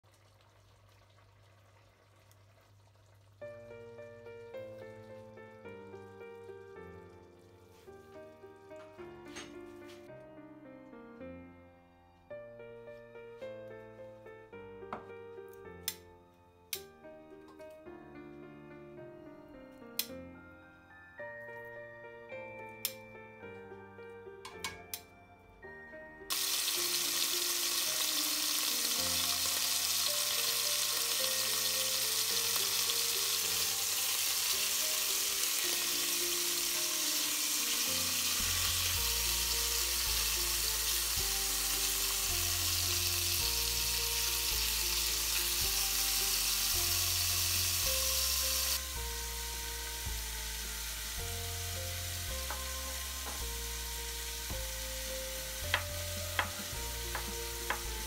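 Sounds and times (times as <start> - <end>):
meat sizzling in hot oil: 26.3 - 58.0
background music with bass line: 48.8 - 58.0.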